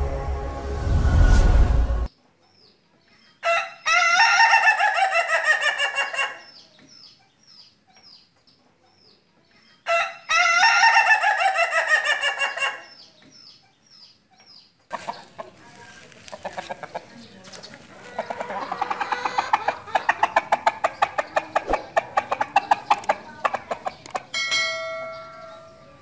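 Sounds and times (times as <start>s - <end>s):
rooster crowing: 3.4s - 6.4s, 9.9s - 12.8s.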